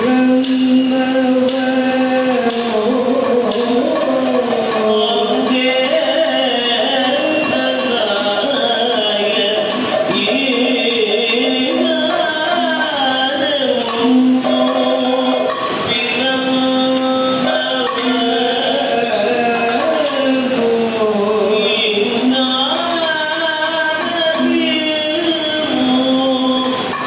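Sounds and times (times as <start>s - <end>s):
drum and percussion strikes: 0.0s - 27.0s
person singing ornamented lines: 0.0s - 27.0s.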